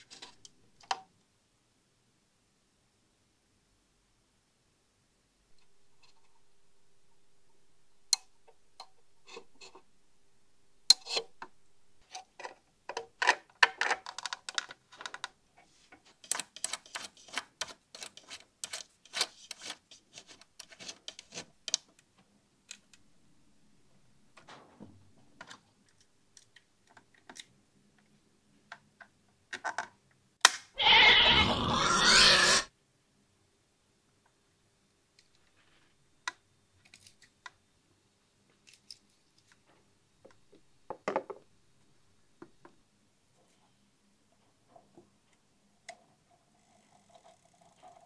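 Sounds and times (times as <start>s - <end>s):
loud noisy rasp: 30.8s - 32.7s.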